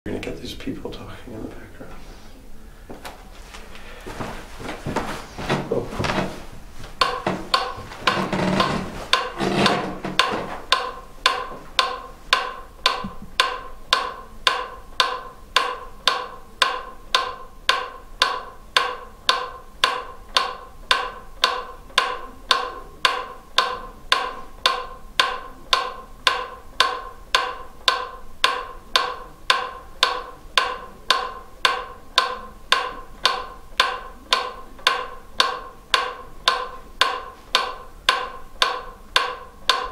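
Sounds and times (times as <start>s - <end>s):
rustling and handling noise: 1.8s - 10.8s
device ticking: 7.0s - 39.9s.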